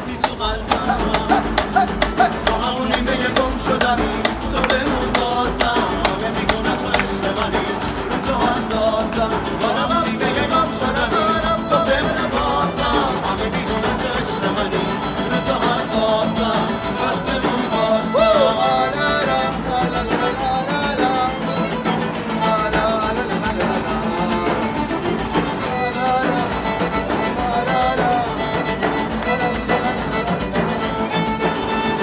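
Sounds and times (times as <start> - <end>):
frame drum: 0.0 - 14.4
person singing: 0.0 - 32.0
strummed acoustic guitars: 0.0 - 32.0
violin: 0.0 - 32.0.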